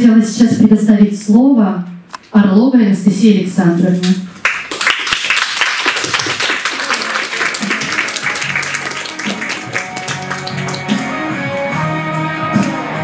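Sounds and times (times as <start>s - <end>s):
audience applauding: 4.4s - 11.6s
background music: 7.0s - 13.0s.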